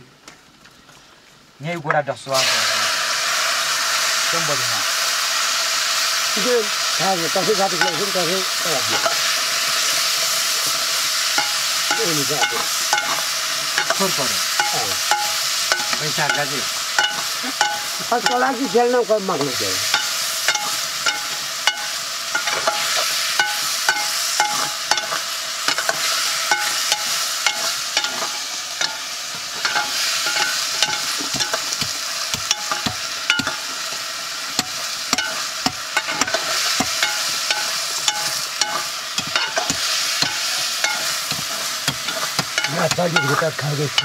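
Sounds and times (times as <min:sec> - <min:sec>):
food sizzling in a pot: 0:02.1 - 0:44.0
metal ladle scraping a pot: 0:19.8 - 0:44.0.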